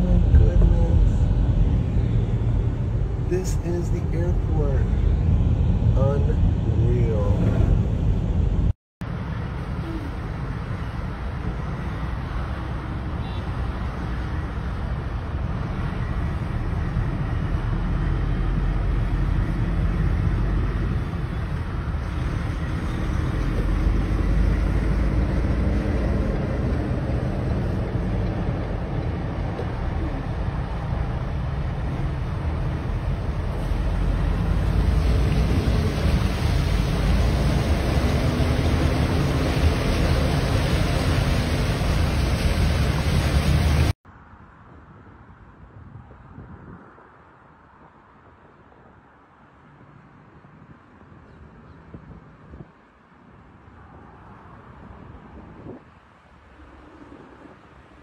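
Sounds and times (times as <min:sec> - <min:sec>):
car driving through water: 0:32.2 - 0:44.0.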